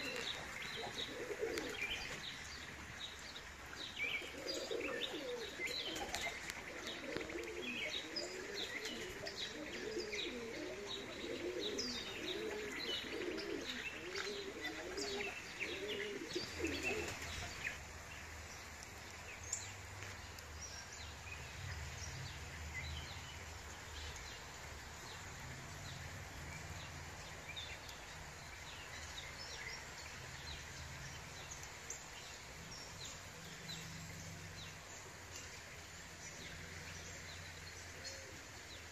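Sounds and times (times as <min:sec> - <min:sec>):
pigeons cooing: 0:00.0 - 0:02.8, 0:03.7 - 0:17.8, 0:38.0 - 0:38.6
small birds chirping: 0:00.0 - 0:38.9.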